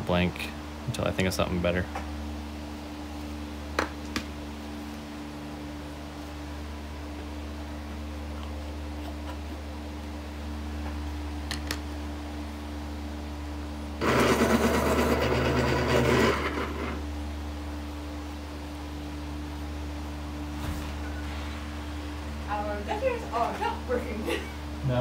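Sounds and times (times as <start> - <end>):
low electrical hum: 0.0 - 25.0
small motor running: 14.0 - 17.1.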